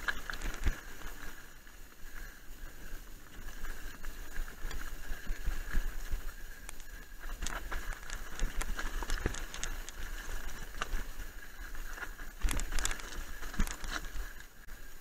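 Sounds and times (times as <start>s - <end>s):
tyres crunching on stones: 0.0s - 1.4s, 3.4s - 14.5s
bike clattering: 2.7s - 14.5s.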